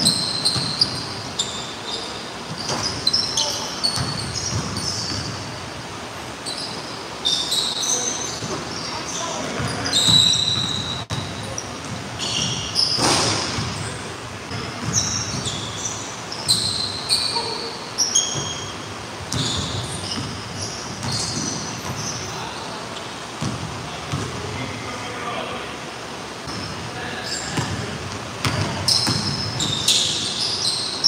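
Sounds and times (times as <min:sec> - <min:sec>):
sneaker squeaks: 0:00.0 - 0:24.4, 0:26.4 - 0:31.0
basketball bouncing on hardwood floor: 0:04.0 - 0:05.4, 0:27.6 - 0:29.8.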